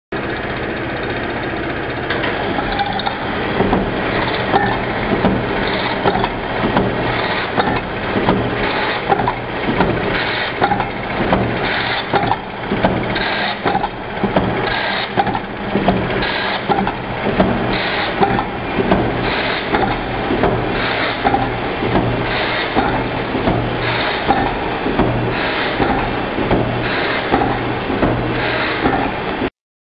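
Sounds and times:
machine motor hum: 0.2s - 29.5s
machine parts clattering: 2.2s - 29.5s.

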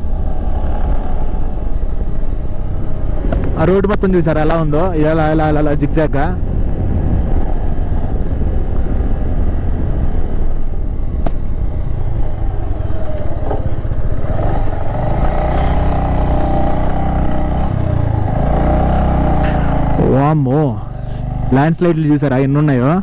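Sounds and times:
motorcycle engine running: 6.4s - 22.1s.

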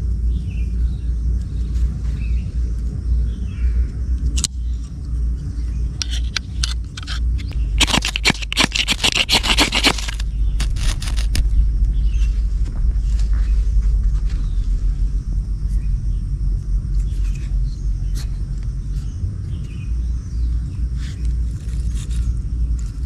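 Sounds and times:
low rumble: 0.0s - 23.0s
knife rasping on ferro rod: 7.8s - 11.4s.

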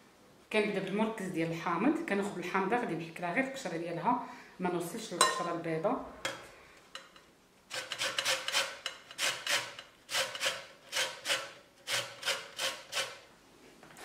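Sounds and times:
lemon rasping on a grater: 7.7s - 13.2s.

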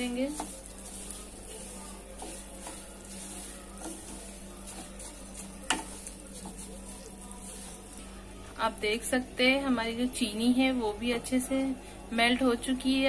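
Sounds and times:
spatula scraping a pan: 0.0s - 8.0s
soft frying sizzle: 0.0s - 13.0s.

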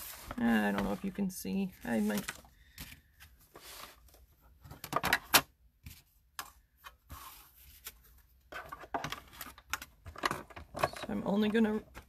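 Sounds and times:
plastic plates clicking and knocking: 8.6s - 12.0s.

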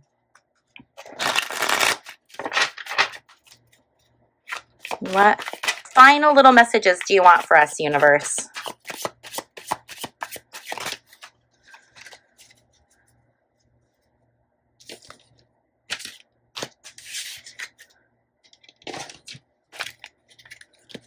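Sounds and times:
cards being shuffled: 0.9s - 3.8s, 4.5s - 6.0s, 8.0s - 12.7s, 15.9s - 17.9s, 18.9s - 21.0s.

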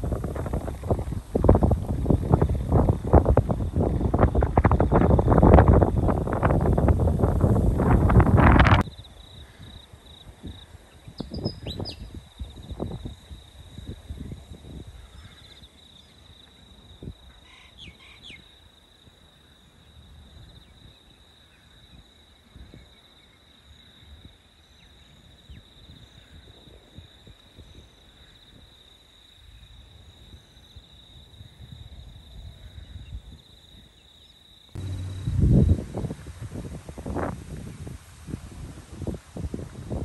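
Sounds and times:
wind gusting on microphone: 0.0s - 15.7s, 34.8s - 40.0s
insects trilling: 0.2s - 36.3s.

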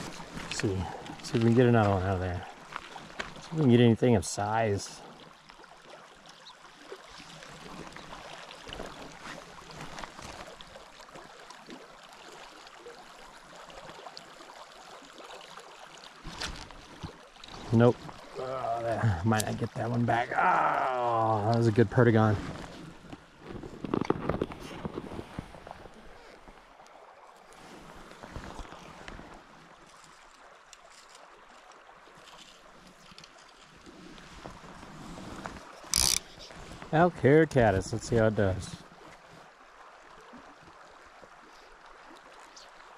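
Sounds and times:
river water rushing: 0.0s - 3.7s
shallow river babbling: 0.0s - 42.9s
small ticks: 35.9s - 36.3s.

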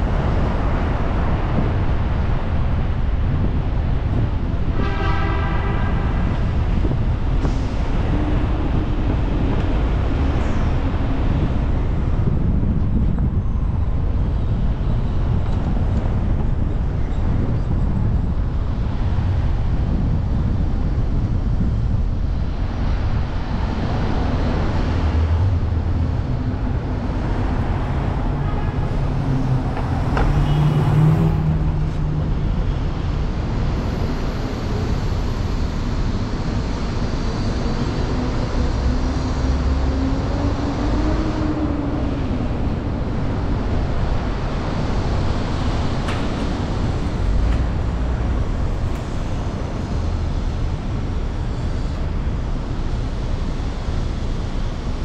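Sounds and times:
tyre and engine rumble: 6.1s - 55.0s
vehicle passing: 24.6s - 33.0s.

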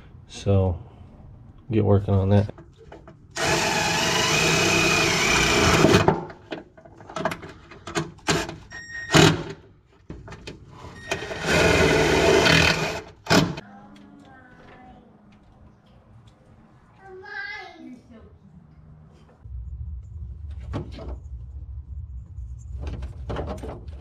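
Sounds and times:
impact driver running: 3.4s - 6.2s, 11.3s - 13.6s.

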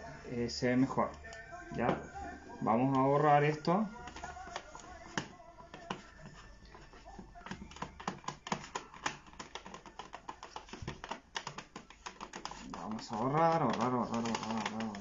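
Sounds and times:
hand wiping a plastic board: 4.1s - 15.0s.

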